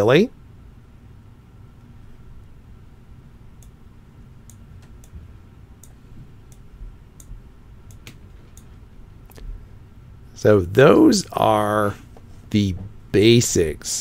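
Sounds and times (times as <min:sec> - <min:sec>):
faint background hum: 0:00.0 - 0:14.0
computer mouse clicks: 0:05.8 - 0:08.7.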